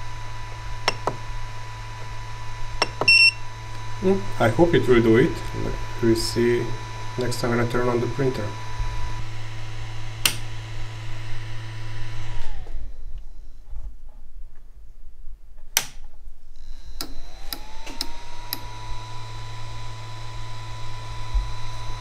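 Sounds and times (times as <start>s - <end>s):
cooling fans whining: 0.0s - 14.4s, 15.7s - 22.0s
printer power click: 17.0s - 18.7s.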